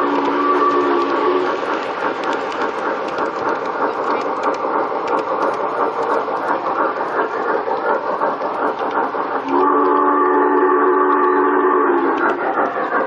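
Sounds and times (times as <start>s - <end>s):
model trains rumbling and clattering: 0.0s - 13.0s.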